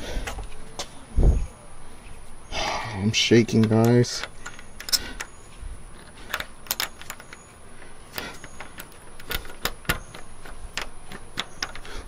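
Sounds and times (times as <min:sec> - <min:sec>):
key rattling in lock: 0:03.4 - 0:07.5, 0:08.1 - 0:12.0.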